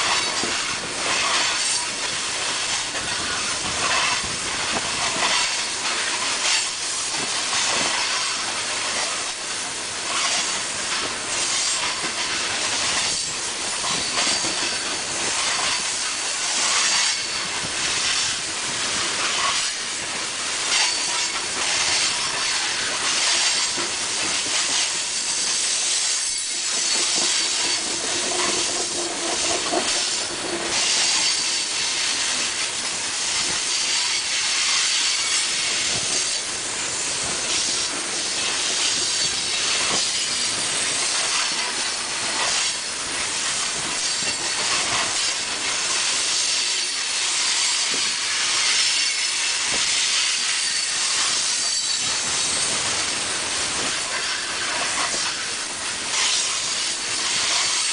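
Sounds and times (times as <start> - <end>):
wheels clacking over rail joints: 0.0 - 36.4
freight train wheels rattling: 0.0 - 57.9
wheel squeal: 24.7 - 31.8, 46.4 - 52.8.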